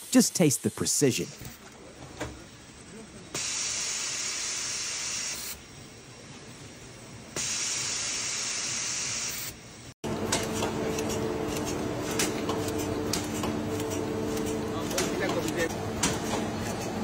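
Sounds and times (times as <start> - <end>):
spraying hiss: 3.4 - 5.6, 7.4 - 9.6
machine hum: 10.0 - 17.0.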